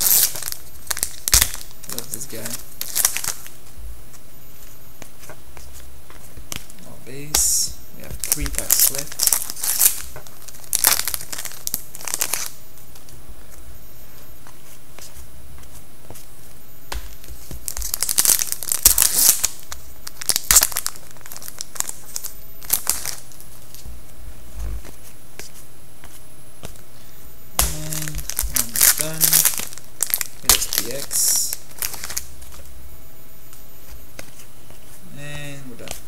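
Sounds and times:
foil wrappers tearing and crinkling: 0:00.0 - 0:03.5, 0:08.2 - 0:12.6, 0:17.2 - 0:23.4, 0:27.6 - 0:32.6.

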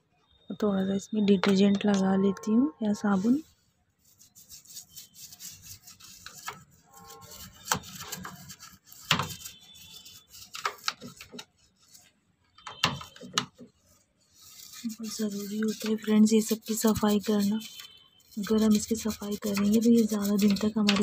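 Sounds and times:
toothbrush scrubbing plastic: 0:04.0 - 0:12.1, 0:13.0 - 0:21.0.

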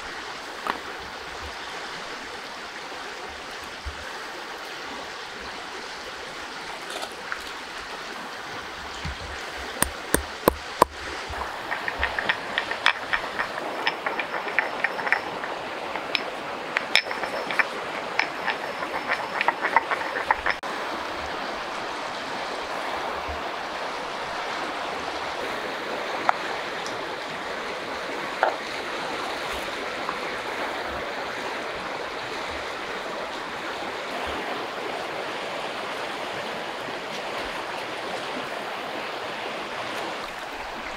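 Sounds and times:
flowing river water: 0:00.0 - 0:40.9
glass jars and stone mortar clicking: 0:09.1 - 0:20.6.

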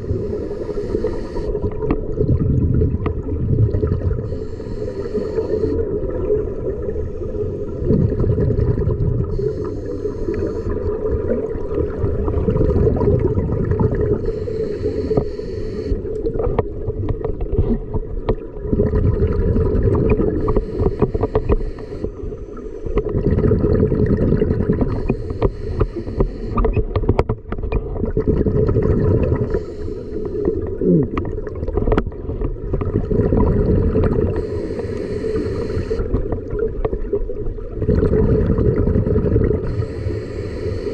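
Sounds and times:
regulator inhale hiss: 0:00.0 - 0:01.8, 0:04.2 - 0:05.8, 0:09.3 - 0:10.8, 0:14.1 - 0:16.1, 0:20.3 - 0:23.0, 0:24.8 - 0:26.7, 0:29.4 - 0:30.8, 0:34.3 - 0:36.1, 0:39.6 - 0:40.9
exhaled bubbles rushing: 0:00.0 - 0:15.2, 0:15.9 - 0:26.8, 0:27.7 - 0:29.8, 0:30.4 - 0:40.9.

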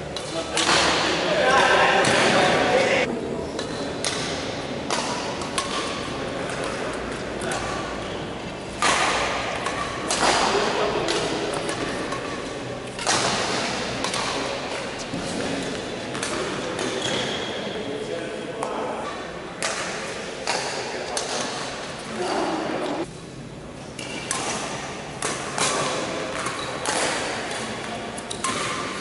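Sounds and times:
shuttlecock struck with rackets: 0:03.6 - 0:06.8, 0:08.8 - 0:14.5.

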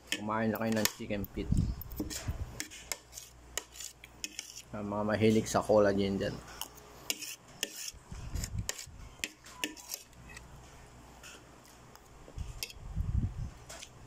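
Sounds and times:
cutlery scraping a plate: 0:01.9 - 0:04.7, 0:06.5 - 0:10.5, 0:12.4 - 0:12.8.

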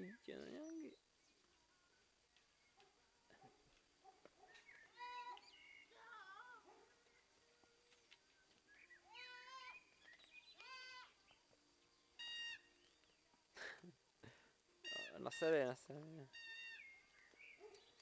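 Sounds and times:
goat kids bleating: 0:05.0 - 0:05.4, 0:09.1 - 0:09.8, 0:10.6 - 0:11.2.

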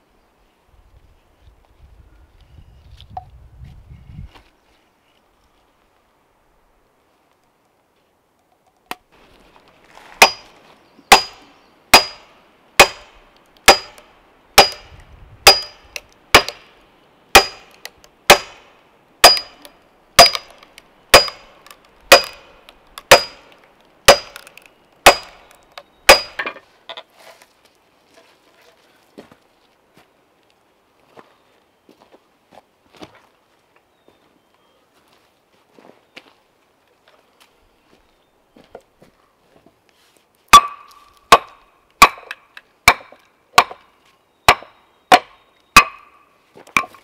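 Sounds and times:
sledgehammer striking steel wedge: 0:10.2 - 0:10.5, 0:11.1 - 0:16.7, 0:17.3 - 0:23.5, 0:24.1 - 0:25.4, 0:26.1 - 0:26.6, 0:40.5 - 0:43.8, 0:44.5 - 0:46.1.

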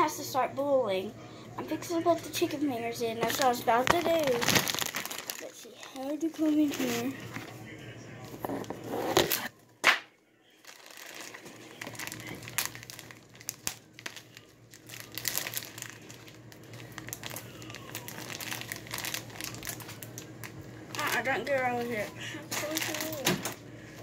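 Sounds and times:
plastic bag crinkling: 0:03.2 - 0:07.4, 0:10.5 - 0:23.6.

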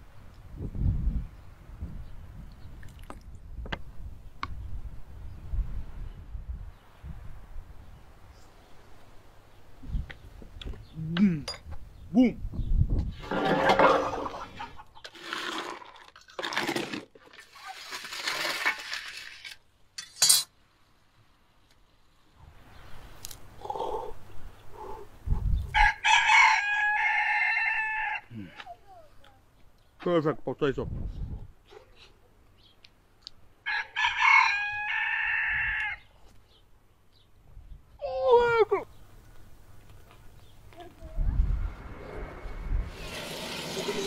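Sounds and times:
metal pans scraping on stone: 0:13.2 - 0:15.8, 0:43.0 - 0:44.0
rooster crowing: 0:25.8 - 0:28.3, 0:33.6 - 0:36.1.

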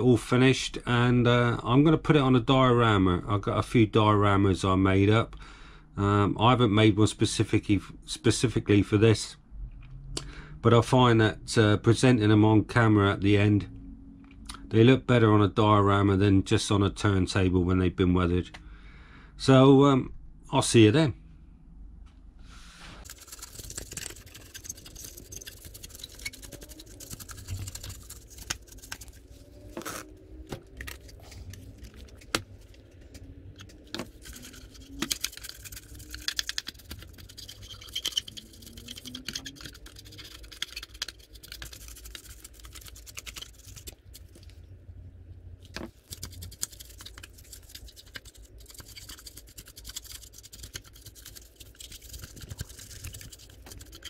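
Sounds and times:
brush scrubbing plastic model: 0:23.0 - 0:44.6, 0:45.6 - 0:54.0.

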